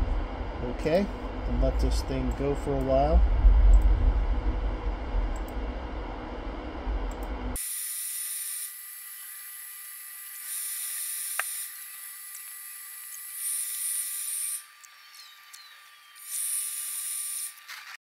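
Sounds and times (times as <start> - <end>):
laser marking machine hissing: 7.6 - 15.2, 16.1 - 17.7.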